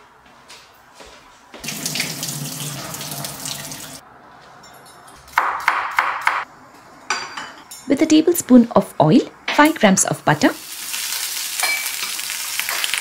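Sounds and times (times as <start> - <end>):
tap water running into sink: 1.6 - 4.0
metal cookware clanking: 11.6 - 12.9.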